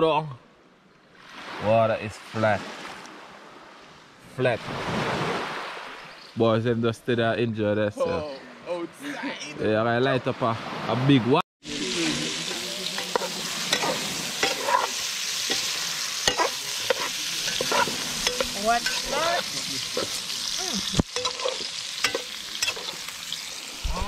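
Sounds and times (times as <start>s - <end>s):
sausages sizzling in a pan: 11.6s - 24.0s
stirring squeaks and scrapes: 12.5s - 23.0s.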